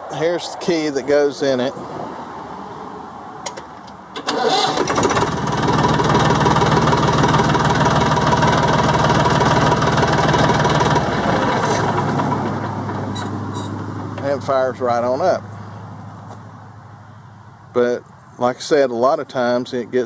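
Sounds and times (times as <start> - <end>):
diesel engine cranking and running: 3.4 - 15.8.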